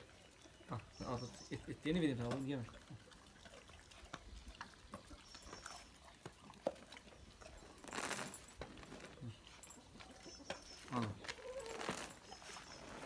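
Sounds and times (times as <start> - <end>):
rustling: 7.8 - 9.8, 10.8 - 13.0.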